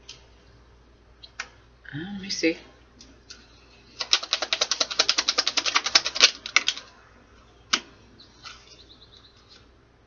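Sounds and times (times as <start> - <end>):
cards being shuffled: 4.0 - 6.8.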